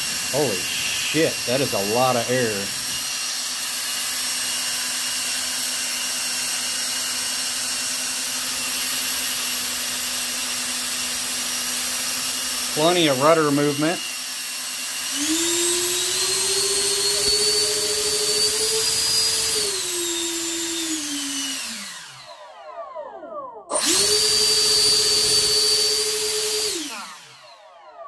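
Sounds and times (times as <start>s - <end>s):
electric ducted fans whining: 0.0s - 3.5s, 15.2s - 27.4s.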